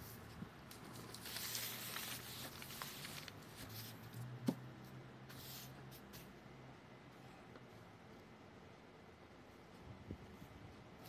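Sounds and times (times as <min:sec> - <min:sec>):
paper rustling and sliding: 0:00.0 - 0:04.2.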